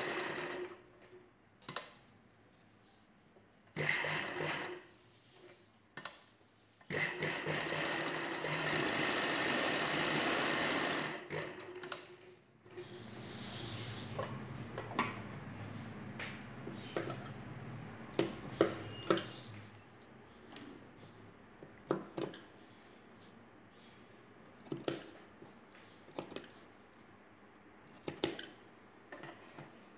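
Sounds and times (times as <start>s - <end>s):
sewing machine stitching: 0.0s - 0.8s, 3.7s - 4.9s, 6.9s - 13.3s.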